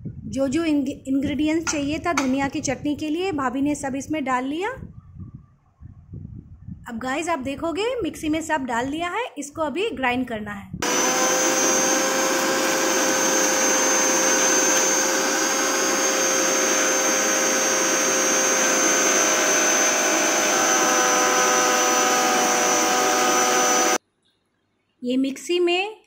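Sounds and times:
mixer grinder whining: 0:10.8 - 0:24.0.

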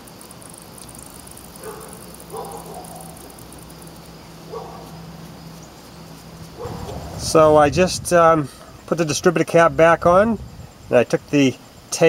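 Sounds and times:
dog barking: 0:01.6 - 0:03.2, 0:04.5 - 0:04.9, 0:06.6 - 0:07.1.

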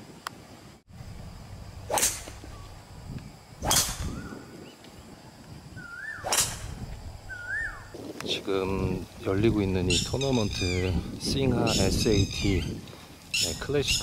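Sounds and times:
golf club swing whoosh: 0:01.8 - 0:02.7, 0:03.6 - 0:04.4, 0:05.8 - 0:07.7.

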